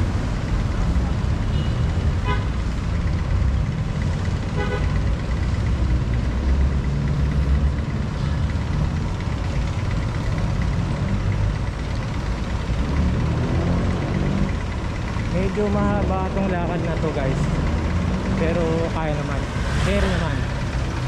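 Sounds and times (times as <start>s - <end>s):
street traffic rumble: 0.0s - 21.0s
vehicle horn toots: 1.5s - 2.6s, 4.6s - 5.0s.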